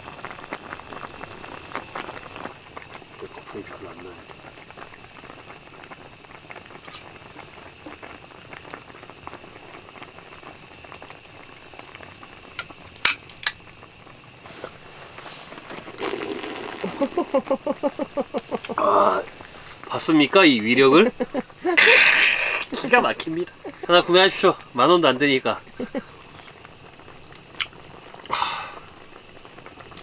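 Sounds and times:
soup bubbling in a pot: 0.0 - 30.0.

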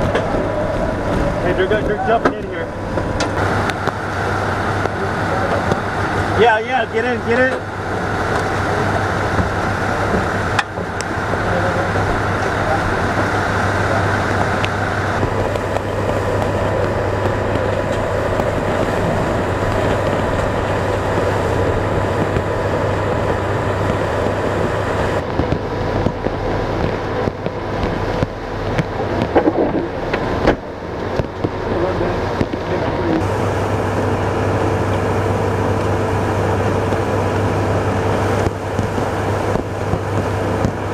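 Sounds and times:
vehicle cabin engine noise: 0.0 - 40.9.

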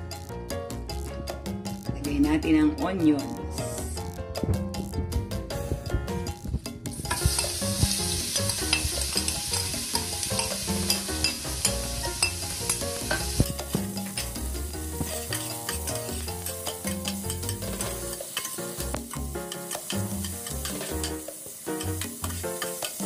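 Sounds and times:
onions sizzling in hot oil: 6.9 - 23.0
spatula stirring in a pot: 7.1 - 23.0.

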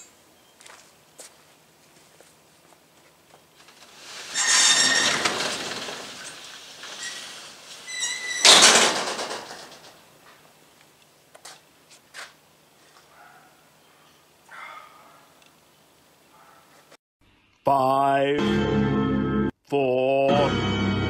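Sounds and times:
metal roller door rattling: 3.6 - 10.3.

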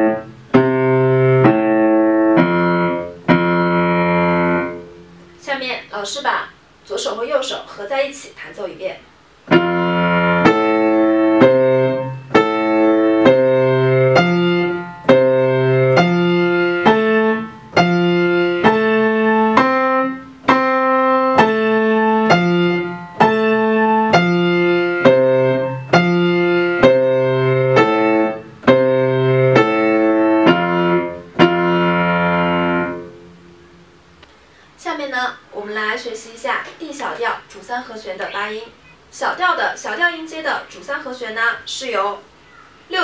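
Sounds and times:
piano arpeggios: 0.0 - 5.5, 9.5 - 34.0.

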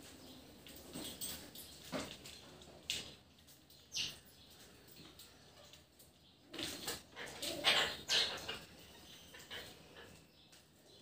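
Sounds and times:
harsh bird calls: 6.3 - 11.0.

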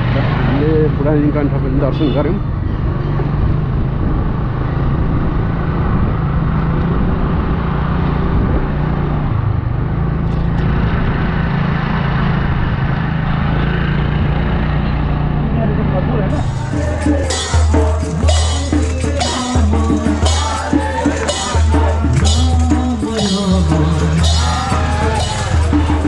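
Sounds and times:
motor scooter engine running: 3.2 - 26.0
rushing noise: 16.3 - 26.0.

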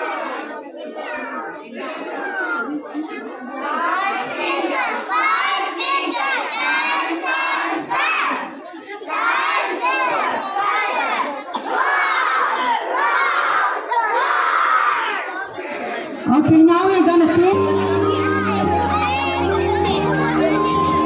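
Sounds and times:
young children shouting: 3.7 - 15.9, 17.6 - 21.0.

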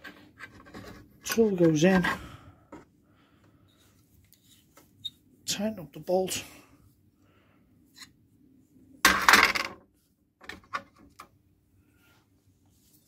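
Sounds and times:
metal parts clattering on bench: 9.1 - 9.8.

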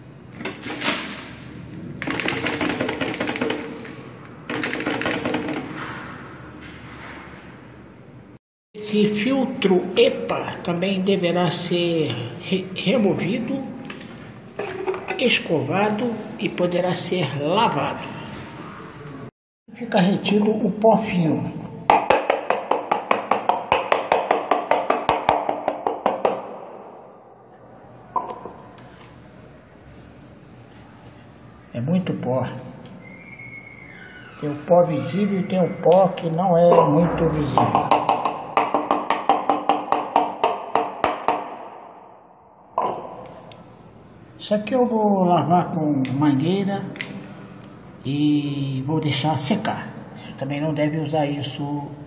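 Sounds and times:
dust rattling into bin liner: 0.5 - 1.6.

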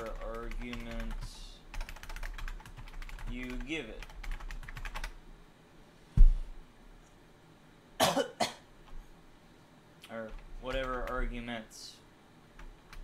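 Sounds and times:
rapid keyboard typing: 0.0 - 5.2, 10.1 - 11.6, 12.5 - 13.0
person coughing: 8.0 - 8.7.

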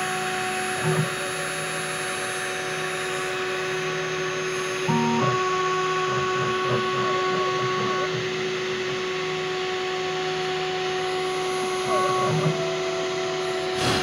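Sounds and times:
spindle motor whining: 0.0 - 14.0
stepper motors humming: 3.8 - 9.6, 10.4 - 14.0.

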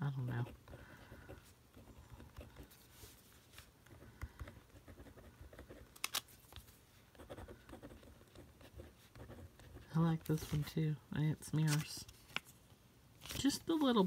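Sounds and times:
pen scratching on paper: 3.9 - 5.8, 7.1 - 10.0.

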